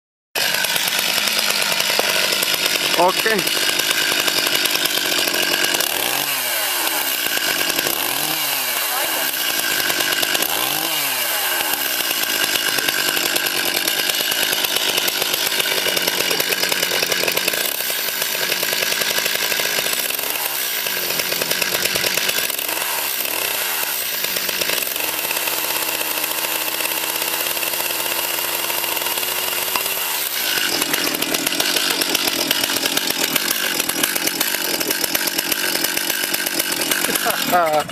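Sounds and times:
two-stroke chainsaw running: 0.4s - 37.9s.

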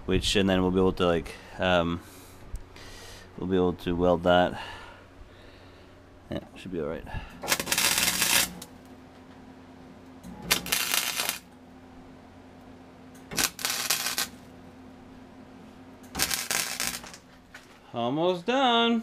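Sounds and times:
welding arc crackling: 7.4s - 8.8s, 10.4s - 11.6s, 13.3s - 14.5s, 16.1s - 17.4s.

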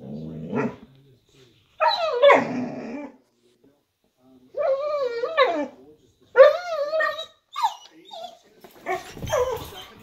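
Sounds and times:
dog barking: 0.5s - 0.8s.

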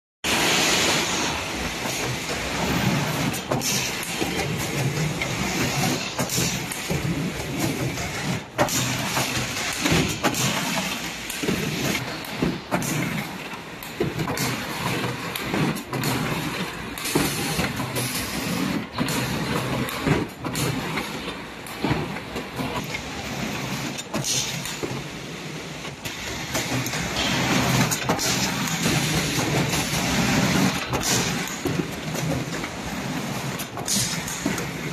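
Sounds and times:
machine clattering: 0.4s - 25.0s, 25.8s - 34.9s.

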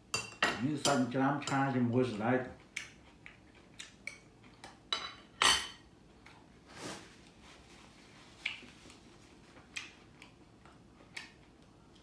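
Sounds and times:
cutlery clinking on plates: 4.9s - 5.9s.

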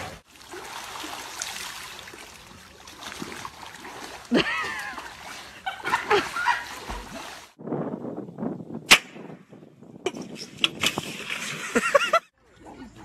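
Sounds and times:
sharp crack: 8.9s - 9.3s.

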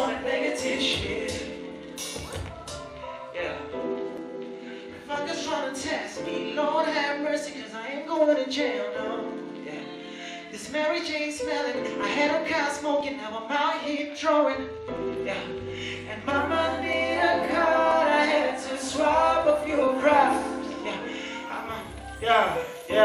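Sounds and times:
man singing into microphone: 0.0s - 3.8s, 4.9s - 23.0s
deep bass line: 14.8s - 20.3s.

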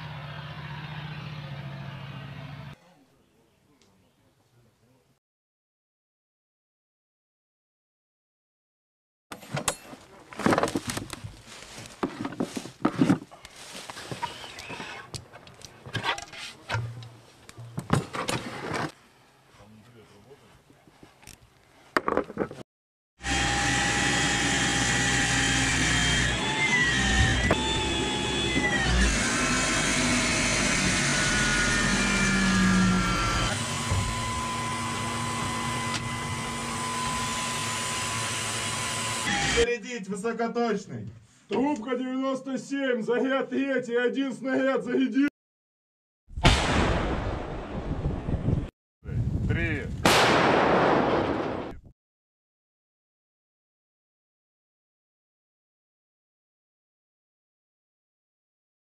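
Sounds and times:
knocks and scuffs on wood: 10.4s - 14.2s
rustling on leaf-covered ground: 10.7s - 14.6s
electric motor whine: 23.2s - 39.6s.

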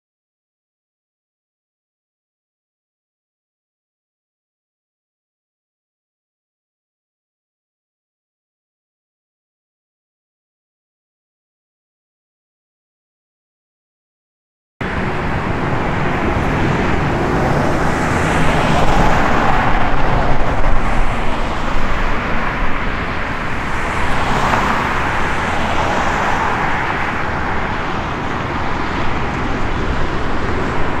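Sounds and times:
cars passing: 14.8s - 31.0s
steady low traffic rumble: 14.8s - 31.0s.

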